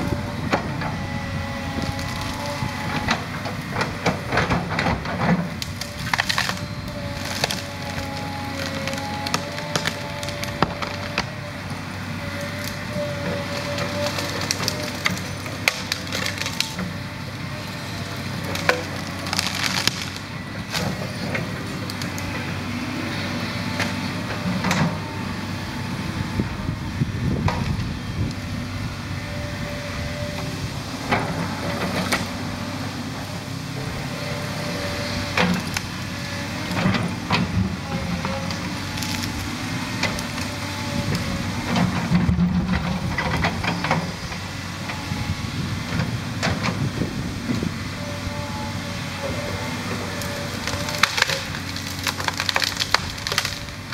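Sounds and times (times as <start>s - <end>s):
excavator diesel engine running: 0.0s - 53.9s
wood and branches cracking: 0.1s - 22.8s, 34.2s - 44.2s, 49.3s - 53.9s.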